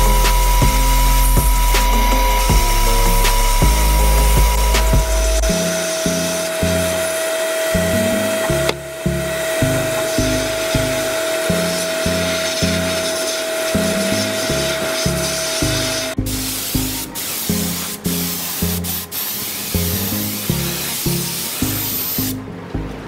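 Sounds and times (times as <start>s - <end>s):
background music with low notes: 0.0s - 23.0s
steady hiss: 16.2s - 22.4s.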